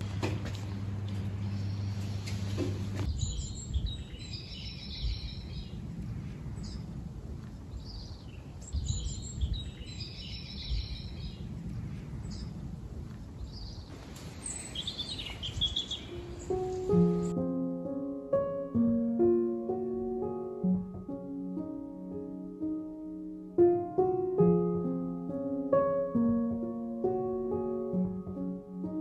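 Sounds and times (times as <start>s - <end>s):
low steady rumble: 0.0s - 8.0s
songbirds singing: 0.6s - 2.3s, 3.0s - 7.0s, 7.6s - 17.4s.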